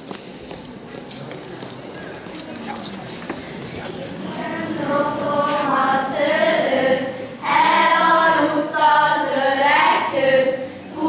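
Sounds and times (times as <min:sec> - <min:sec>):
choir singing long notes: 0:04.2 - 0:11.0.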